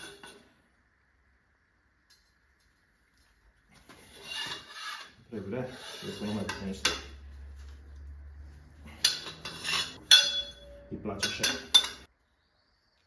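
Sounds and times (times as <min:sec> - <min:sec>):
metal clinks: 0:08.9 - 0:12.1
wrench scraping and clinking on bolt: 0:08.9 - 0:12.1.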